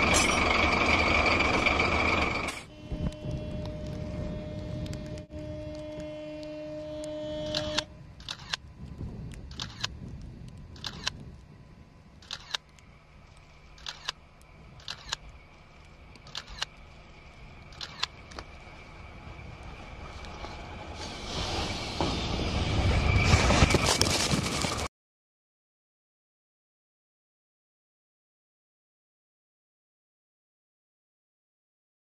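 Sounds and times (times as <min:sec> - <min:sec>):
locomotive rumble: 0:00.0 - 0:24.9
locomotive horn: 0:02.2 - 0:08.0.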